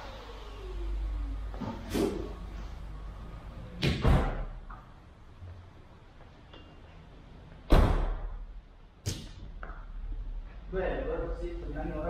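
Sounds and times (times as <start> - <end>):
car door slamming: 3.8 - 4.6, 7.7 - 8.4.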